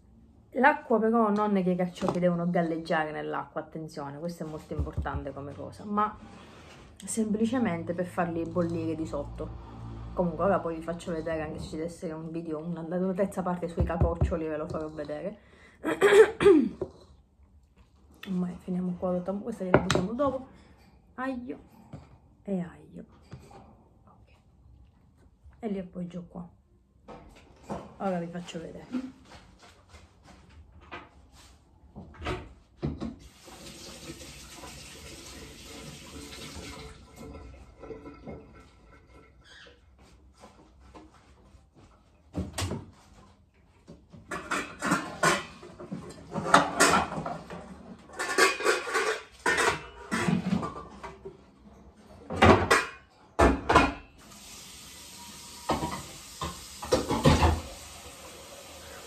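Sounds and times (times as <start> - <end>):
tap running into sink: 32.8 - 37.4
metal pots and pans clattering: 34.0 - 39.6, 44.1 - 51.4, 52.2 - 54.2, 55.6 - 57.8.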